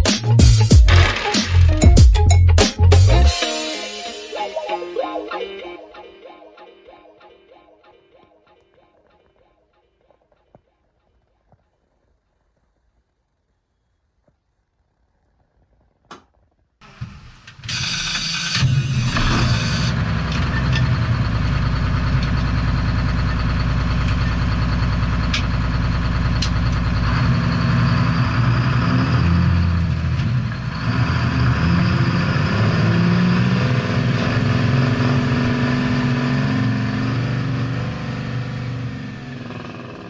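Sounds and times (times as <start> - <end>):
large truck engine running: 16.8 - 40.0.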